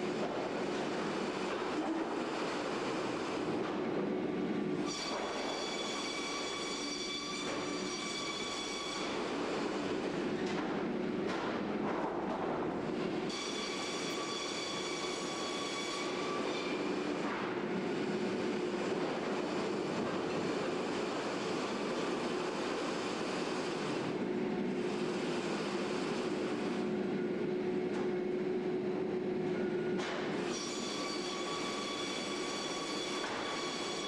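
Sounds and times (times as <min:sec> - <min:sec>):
sawmill machinery din: 0:11.6 - 0:27.0, 0:29.6 - 0:34.0.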